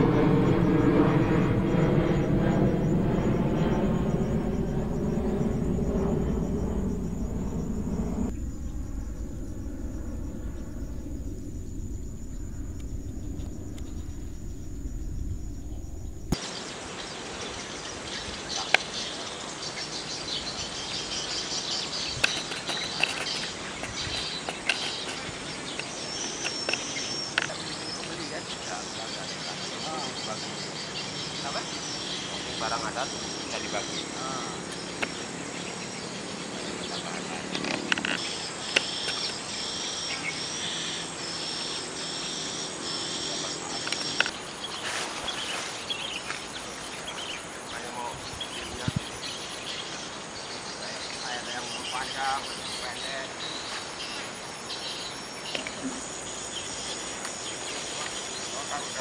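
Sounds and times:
birds chirping: 0.0s - 16.7s, 17.8s - 40.8s
insects chirping: 0.0s - 59.0s.

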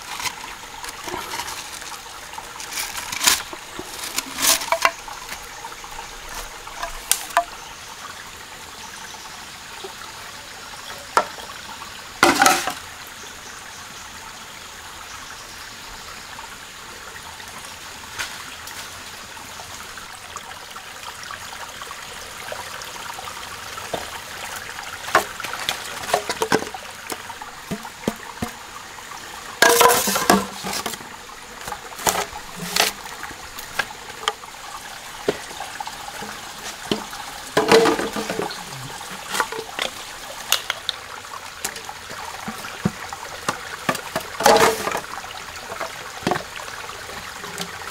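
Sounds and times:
bamboo tubes knocking and crackling: 0.0s - 7.8s, 11.0s - 11.6s, 12.2s - 12.9s, 23.4s - 47.9s
stream running: 0.0s - 47.9s.

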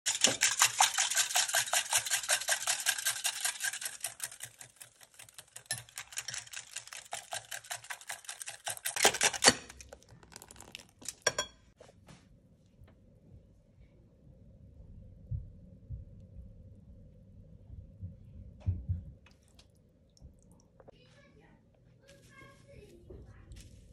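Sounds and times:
whisk clicking against glass bowl: 0.1s - 9.7s.

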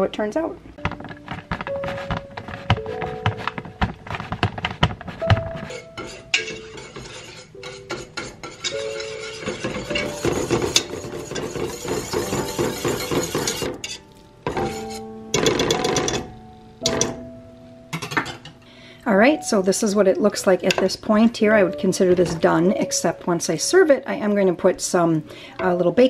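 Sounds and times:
light background music: 0.0s - 26.0s
whisk stirring in metal pot: 1.3s - 16.2s
cheese scraping on grater: 5.1s - 13.7s.

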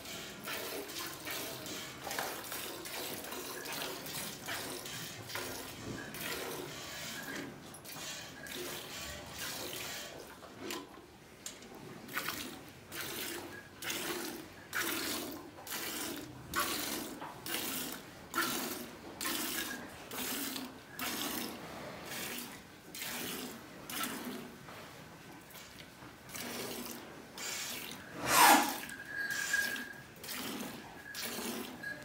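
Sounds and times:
milk squirting into steel pail: 12.1s - 24.4s, 25.5s - 32.0s.

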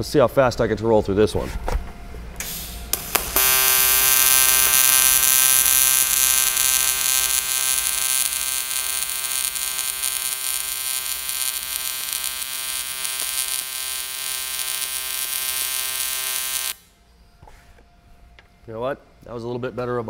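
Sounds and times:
welding arc buzzing: 2.4s - 17.0s.

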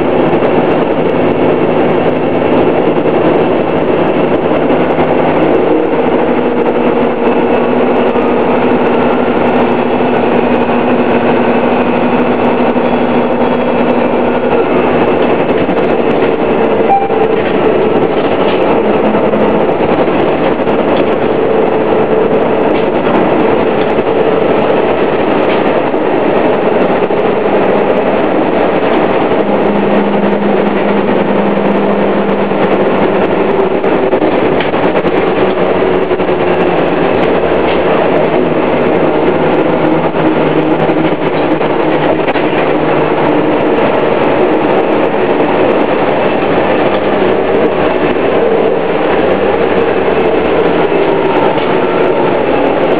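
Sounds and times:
bus engine driving: 0.0s - 52.9s
transmission whine: 0.0s - 52.9s.

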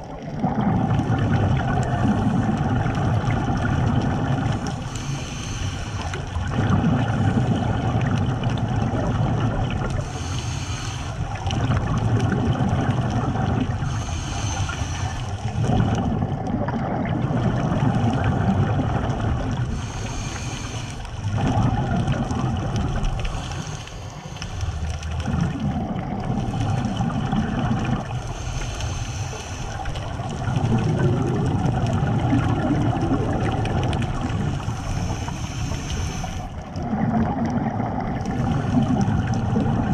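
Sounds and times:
gurgling exhaled bubbles: 0.0s - 39.9s
regulator hissing inhalations: 4.8s - 6.2s, 10.0s - 11.4s, 13.8s - 15.4s, 19.7s - 21.0s, 23.2s - 24.9s, 28.3s - 30.0s, 34.6s - 36.6s.

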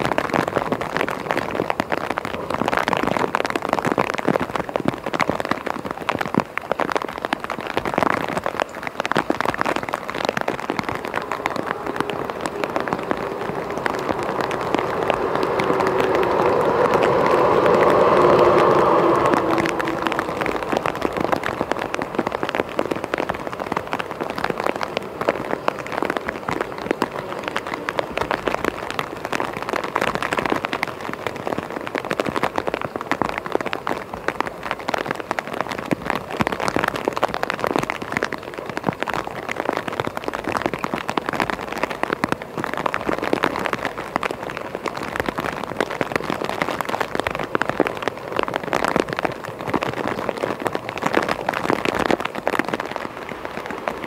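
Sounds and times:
rain crackling: 0.0s - 54.0s
freight train rolling past: 10.5s - 24.2s.

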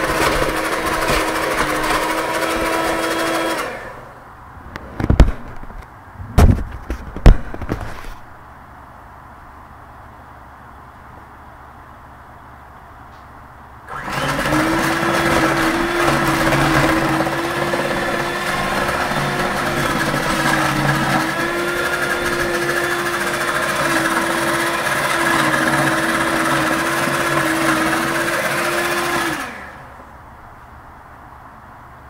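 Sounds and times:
electric hand mixer whine: 0.0s - 4.1s, 13.9s - 30.0s.

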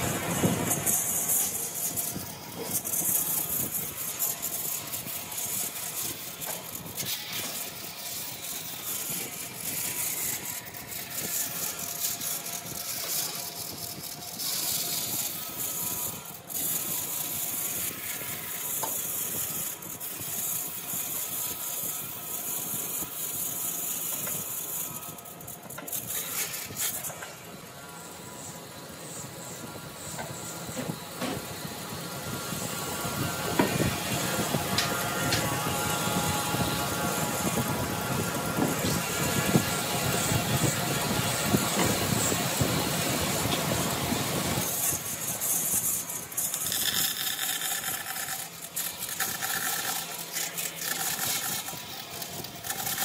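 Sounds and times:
power tool cutting wood: 0.0s - 28.5s, 29.1s - 53.0s.

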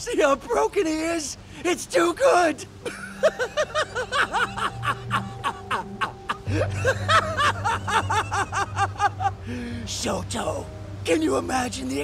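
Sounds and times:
low music drone: 2.6s - 12.0s
man laughing: 2.8s - 9.4s.

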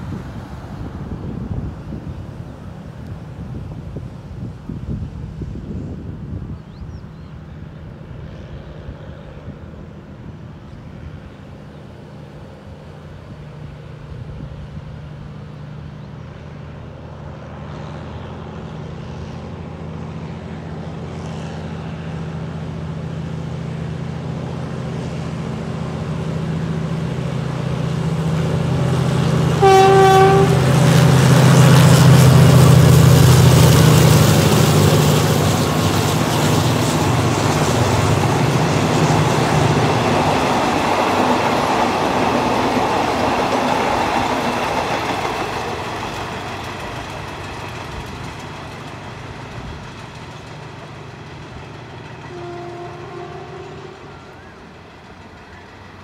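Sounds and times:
carriages rumbling by: 0.0s - 56.0s
locomotive engine drone: 0.0s - 56.0s
train horn blast: 29.3s - 33.2s, 52.2s - 54.6s.

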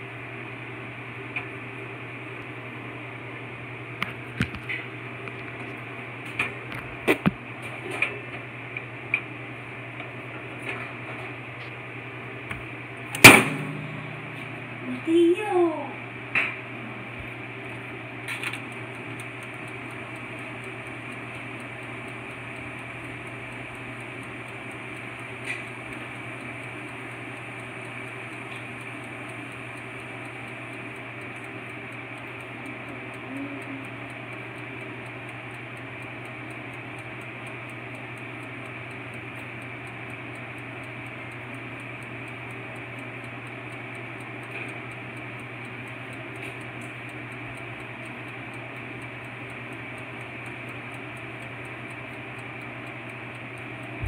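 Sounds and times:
toaster oven hum: 0.0s - 54.0s
timer ticking: 12.6s - 16.0s, 17.6s - 54.0s.

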